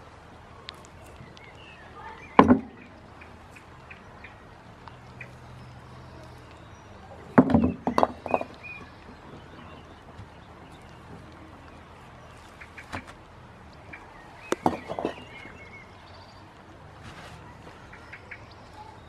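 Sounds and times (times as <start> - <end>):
paving stones knocking together: 0.6 - 3.0, 7.2 - 11.8, 14.4 - 15.7.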